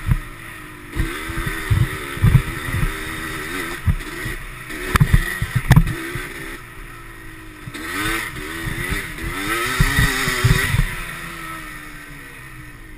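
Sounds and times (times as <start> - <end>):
atv engine revving: 0.0 - 12.9
sharp knocks: 4.9 - 6.0.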